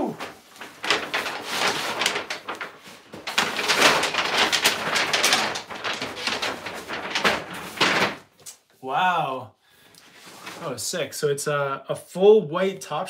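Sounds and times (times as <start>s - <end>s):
paper crinkling and rustling: 0.0s - 8.6s, 10.1s - 10.7s.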